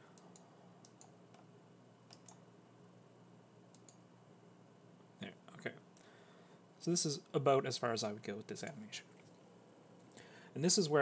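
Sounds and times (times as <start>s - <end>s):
low steady room hum: 0.0s - 11.0s
computer mouse clicks: 0.1s - 1.5s, 2.1s - 2.4s, 3.7s - 4.0s.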